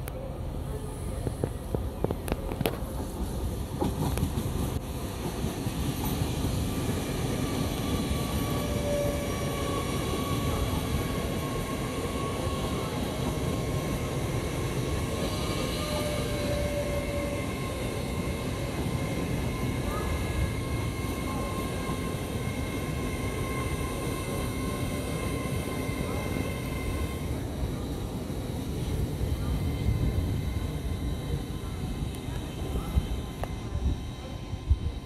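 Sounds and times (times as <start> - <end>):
train wheels rumbling: 0.0 - 35.0
faint high whining tones: 7.0 - 35.0.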